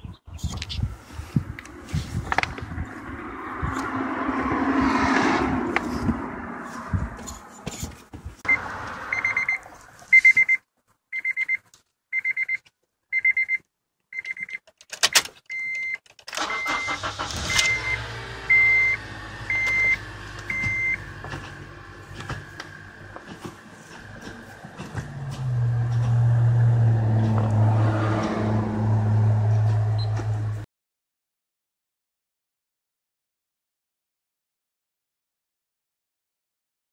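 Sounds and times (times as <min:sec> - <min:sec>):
dashboard warning chime beeping: 0:08.5 - 0:13.6, 0:14.2 - 0:21.1
car engine running: 0:16.4 - 0:30.6.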